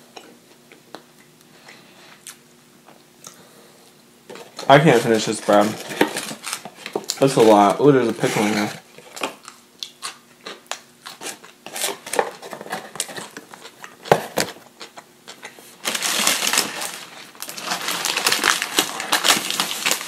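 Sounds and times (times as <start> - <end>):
paper food wrapper crinkling: 4.3 - 20.0
chewing clicks and smacks: 9.4 - 11.2.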